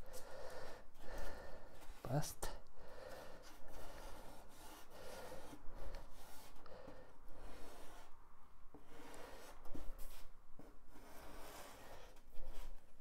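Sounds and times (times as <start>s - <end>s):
pencil scratching on foam board: 3.1s - 8.1s, 8.7s - 12.9s.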